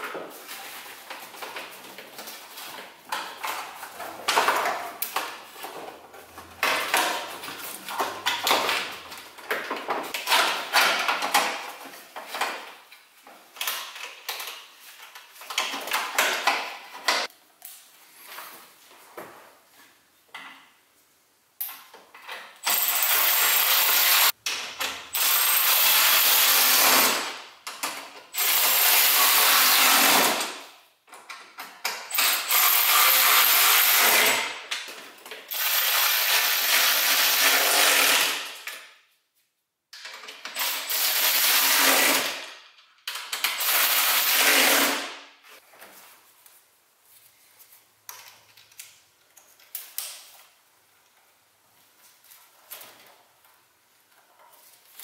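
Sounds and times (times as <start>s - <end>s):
cordless power tool driving fasteners: 22.6s - 27.3s, 32.1s - 34.5s, 35.5s - 38.5s.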